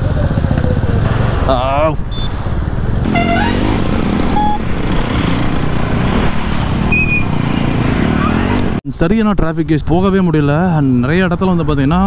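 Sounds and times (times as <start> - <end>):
motorcycle engine running: 3.0 - 8.8
horn beep: 3.1 - 4.8, 6.9 - 8.6.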